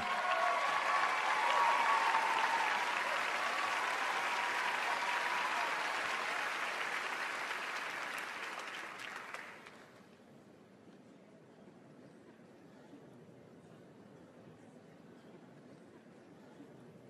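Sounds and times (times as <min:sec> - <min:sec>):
audience applauding: 0:00.0 - 0:10.0.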